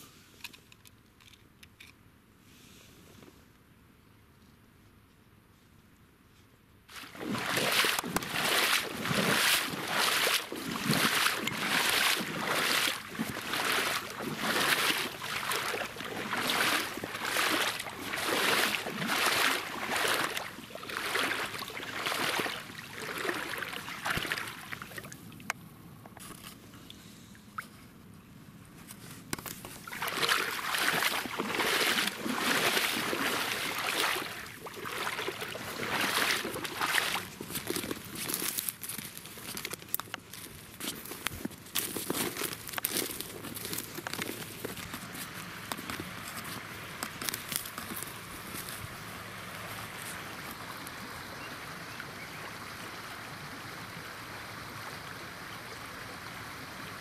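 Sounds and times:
water sloshing and splashing: 6.9 - 25.6, 29.4 - 51.3.

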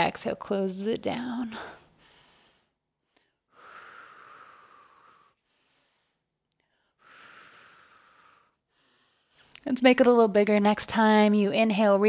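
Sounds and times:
woman breathing: 1.4 - 9.6.

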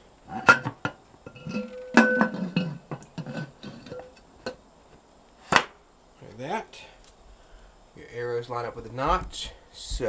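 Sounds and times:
metal lid clinking and scraping: 0.3 - 4.6
metal ringing tone: 1.3 - 2.8.

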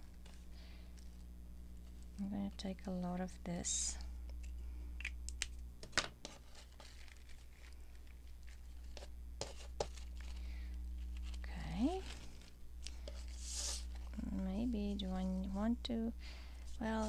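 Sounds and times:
steady low hum: 0.0 - 17.0
paper rustling and tearing: 6.2 - 14.2.

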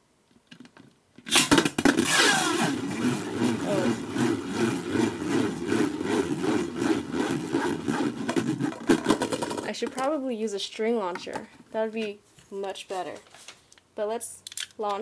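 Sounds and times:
spinning top launch: 1.3 - 9.7
spinning top rattling in plastic bowl: 8.1 - 10.2.

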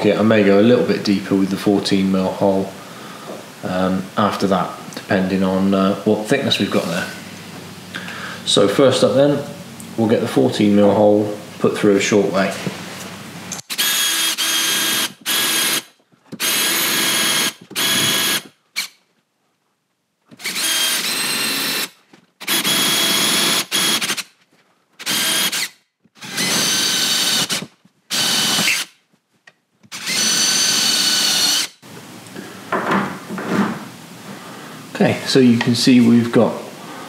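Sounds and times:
cordless drill boring into wood: 13.7 - 19.0, 20.4 - 24.3, 25.0 - 28.9, 29.9 - 31.8.

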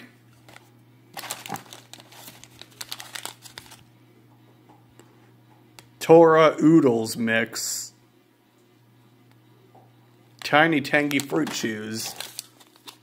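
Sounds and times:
plastic snack packet crinkling: 0.5 - 3.8, 10.4 - 13.0.

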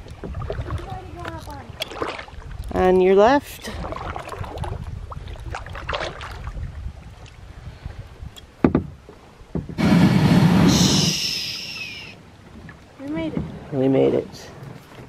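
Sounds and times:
paddle splashes: 0.0 - 15.0
knock: 8.6 - 8.9
kayak hull scraping on sand: 9.8 - 11.2.

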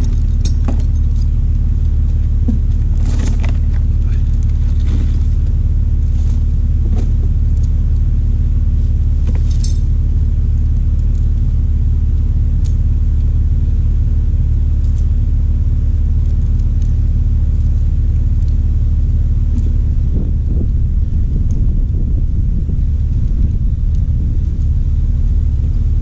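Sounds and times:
steel chain clinking: 0.0 - 7.2, 9.4 - 10.4, 14.4 - 18.6, 24.2 - 26.0
car engine idling: 0.0 - 26.0.

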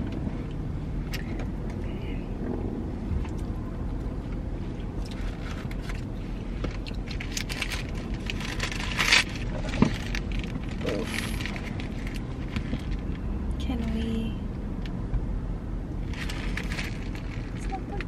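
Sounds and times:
steady low hum: 0.0 - 18.0
paper wrapper crinkling: 7.0 - 13.0, 16.1 - 18.0.

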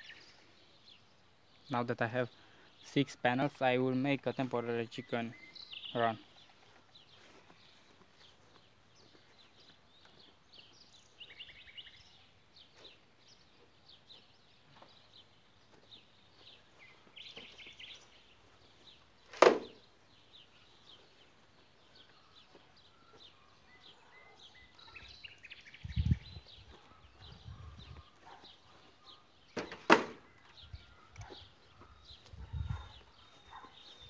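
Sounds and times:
small birds chirping: 0.0 - 34.0
panel thudding on grass: 19.3 - 19.8, 29.5 - 30.3
sharp knock: 19.4 - 19.8, 29.6 - 30.2.

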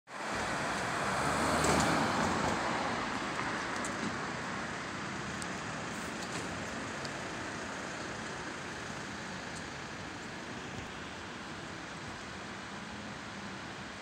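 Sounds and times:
road traffic noise: 0.1 - 14.0
vehicle passing close: 0.2 - 5.3.

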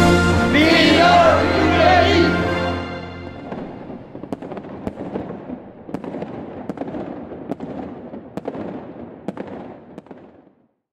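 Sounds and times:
fireworks bangs: 3.3 - 10.6.

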